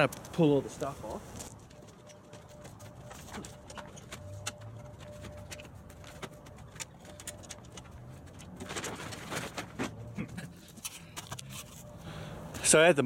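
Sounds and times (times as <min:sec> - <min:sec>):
light clicks and knocks of gear: 0:00.0 - 0:11.9
plastic tarp rustling: 0:08.3 - 0:10.3.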